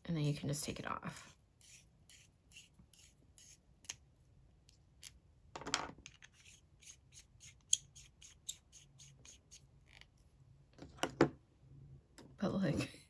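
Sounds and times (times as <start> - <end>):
scratchy rubbing of plastic cap: 1.6 - 4.0, 6.1 - 10.1.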